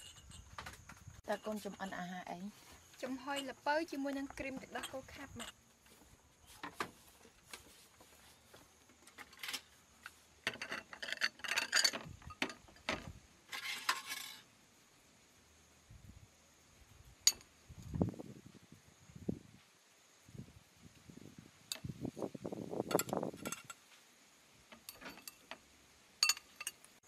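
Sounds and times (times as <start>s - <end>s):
glass saucers clinking: 24.8s - 25.6s, 26.2s - 26.8s.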